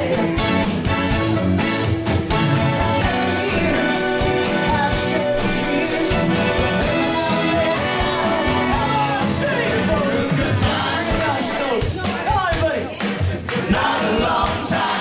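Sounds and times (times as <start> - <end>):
person singing: 0.0 - 0.8, 2.3 - 11.8
guitar: 0.0 - 15.0
upbeat band music: 0.0 - 15.0
steady beat: 1.3 - 15.0.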